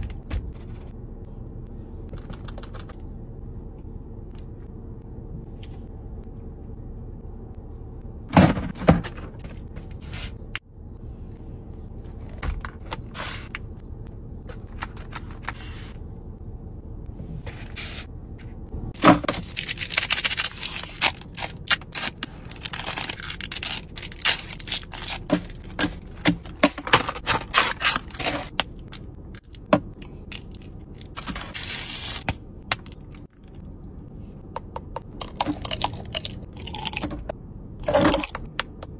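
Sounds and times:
plastic wrapper crinkling and tearing: 19.3 - 25.6.

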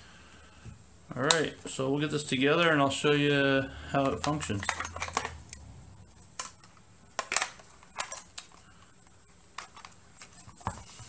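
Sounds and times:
plastic parts clicking and tapping: 4.0 - 5.6, 6.3 - 10.8.

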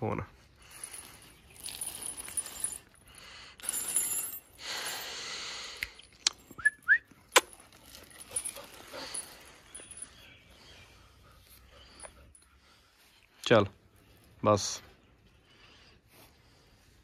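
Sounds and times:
rustling: 0.6 - 3.0, 7.3 - 10.2
chain leash rattling: 0.6 - 5.3, 6.0 - 10.6.

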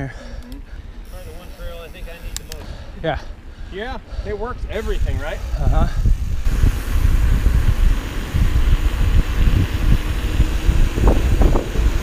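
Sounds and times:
wind buffeting microphone: 3.5 - 12.0
tyre noise on asphalt: 6.0 - 12.0.

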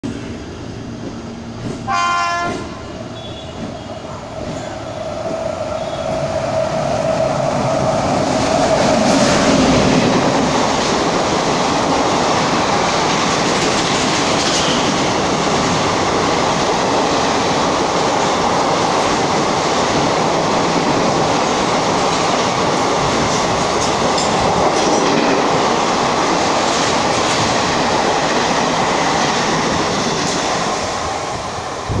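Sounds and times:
train wheels rumbling on rails: 0.0 - 32.0
train horn blast: 1.9 - 3.9.

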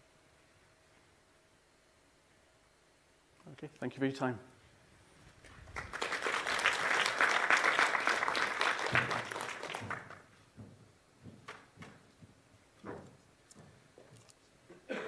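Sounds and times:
audience clapping: 5.4 - 10.4
faint knocks: 10.6 - 14.1.

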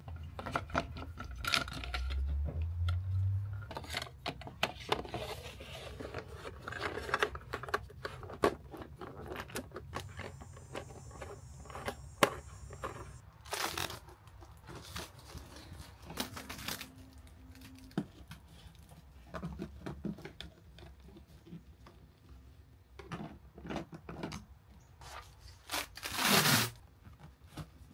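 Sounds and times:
faint low hum: 10.0 - 13.3.

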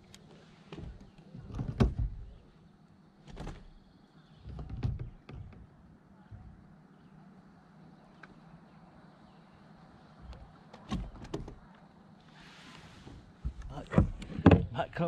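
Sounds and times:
hollow clunks in plastic kayak: 13.4 - 14.8.

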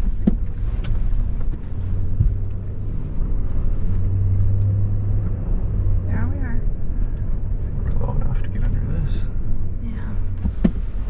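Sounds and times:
pickup engine and road rumble: 0.0 - 11.0.

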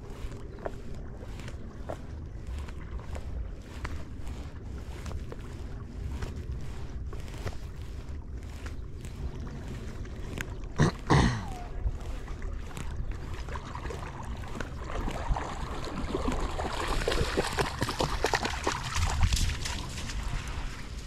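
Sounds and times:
dog splashing through water: 13.1 - 21.0.

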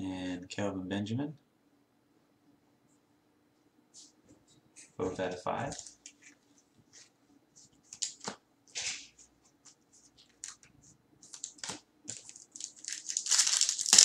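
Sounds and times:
plastic wrapper crinkling and tearing: 10.2 - 14.0.

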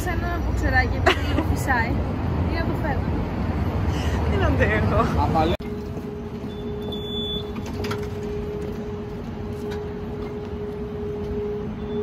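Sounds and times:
card reader beep: 6.4 - 8.9.

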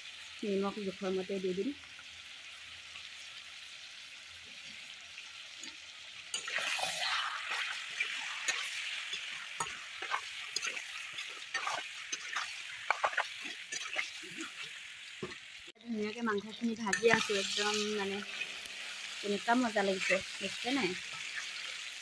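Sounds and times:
meat sizzling in hot oil: 0.0 - 22.0
metal spatula scraping a wok: 6.4 - 15.4, 16.9 - 19.1.

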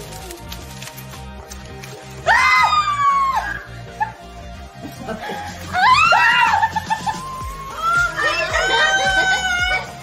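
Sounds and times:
music with steady beat: 0.0 - 10.0
high-pitched excited scream: 2.2 - 3.7, 5.7 - 10.0.

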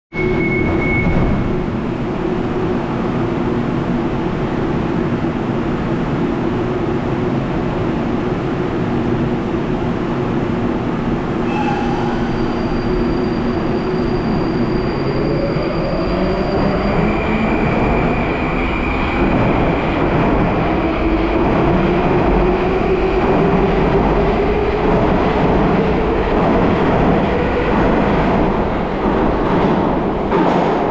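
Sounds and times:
train rumble: 1.1 - 30.9
train electrical hum: 11.4 - 15.0.

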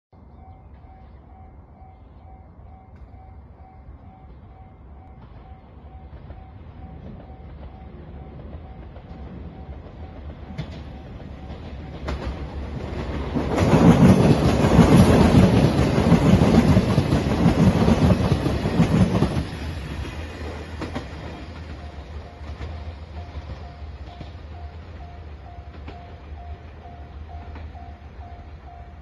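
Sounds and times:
diesel train passing: 0.2 - 29.0
level-crossing bell dinging: 0.3 - 12.4, 21.6 - 29.0.

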